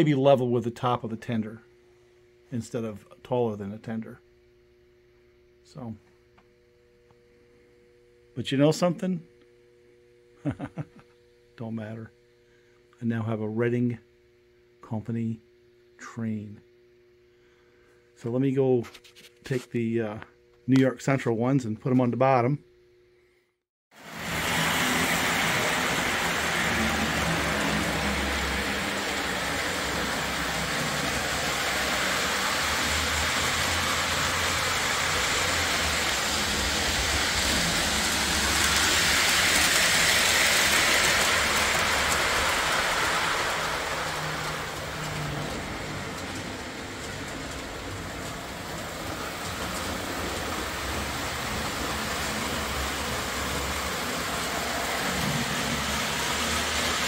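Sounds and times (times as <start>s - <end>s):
low motor hum: 24.1s - 57.0s
model train wheels clattering: 24.3s - 57.0s.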